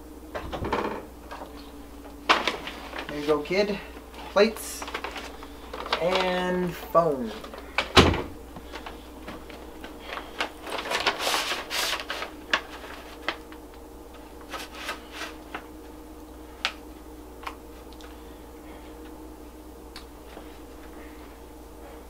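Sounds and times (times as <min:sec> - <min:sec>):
faint steady hum: 0:00.0 - 0:22.0
paper rustling and crinkling: 0:01.5 - 0:08.0, 0:08.6 - 0:15.7.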